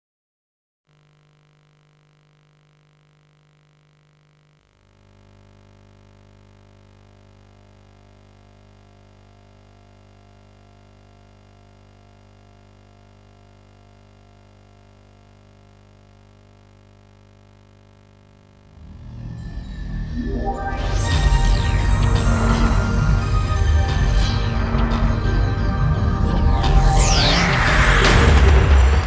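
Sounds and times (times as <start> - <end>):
electrical hum: 0.9 - 25.1.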